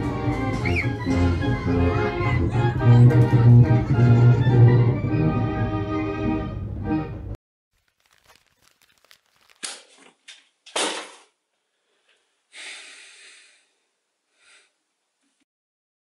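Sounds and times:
person breathing heavily: 11.7 - 14.8
long sighing breath: 11.8 - 14.8.

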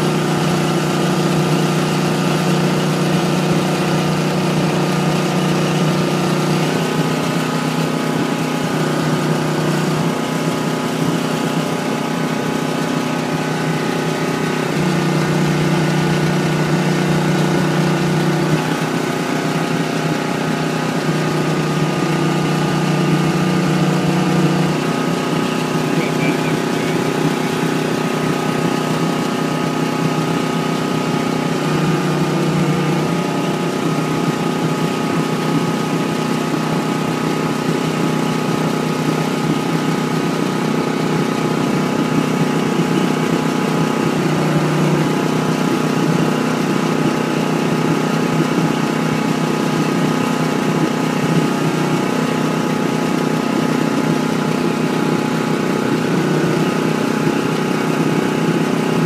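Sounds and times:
diesel truck engine running: 0.0 - 59.0.

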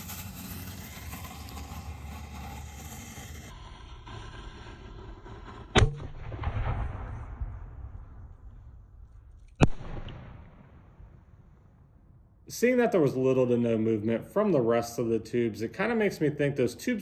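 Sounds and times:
firework mortar launch bang: 0.0 - 3.6, 4.2 - 8.8, 9.6 - 11.1
firework shell bursting: 0.0 - 3.6
burning fuse hissing: 0.0 - 5.1.

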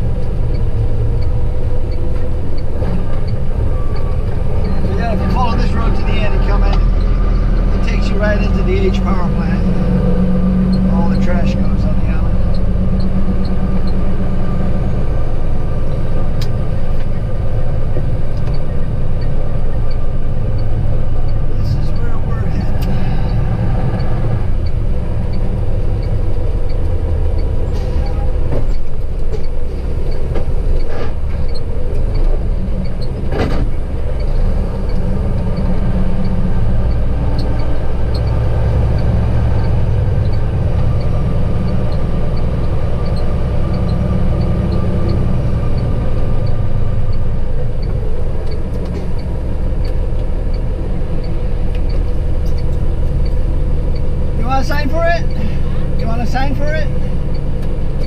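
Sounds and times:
faint regular ticking: 0.0 - 58.0
road noise: 0.0 - 58.0
truck diesel engine drone: 0.0 - 58.0.

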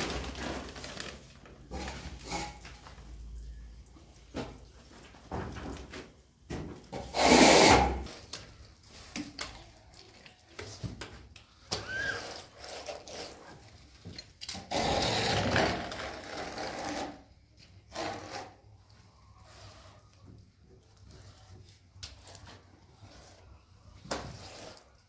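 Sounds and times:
trowel scraping plaster: 1.7 - 2.8, 6.9 - 8.4, 11.7 - 25.0
rustle and squelch of plaster: 8.0 - 14.8, 16.9 - 25.0.

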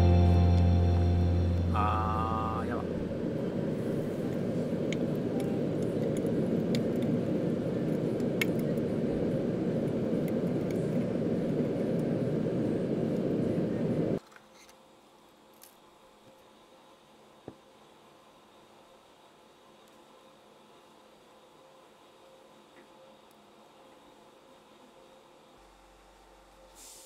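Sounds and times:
hot metal hissing in oil: 26.8 - 27.0.

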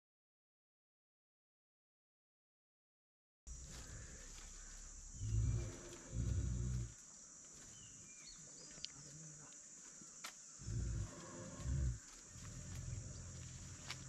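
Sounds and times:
elephant rumbling: 3.5 - 7.0, 10.6 - 14.0.

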